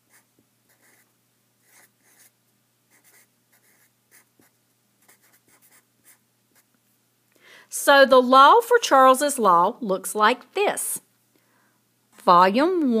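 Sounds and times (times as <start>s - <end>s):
marker scratching on paper: 0.0s - 6.7s.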